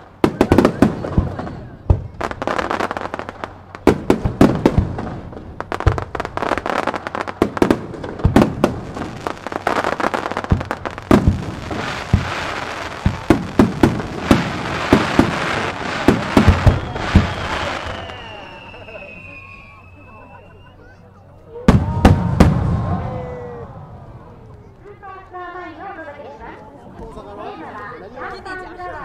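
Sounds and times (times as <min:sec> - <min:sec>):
fireworks bangs: 0:00.0 - 0:20.1, 0:21.7 - 0:24.6
continuous hiss: 0:00.0 - 0:29.0.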